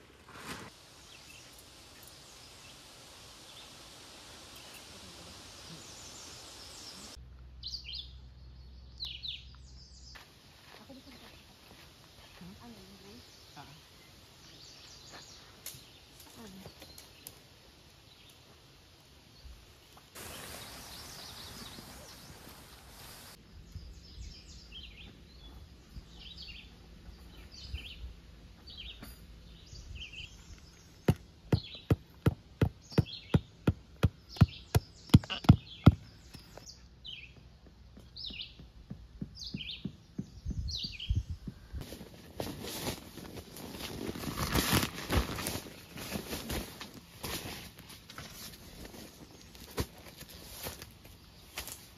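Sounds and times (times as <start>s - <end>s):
steady hiss: 0.0s - 7.2s, 17.3s - 23.5s
songbirds chirping: 0.7s - 44.8s, 45.4s - 51.9s.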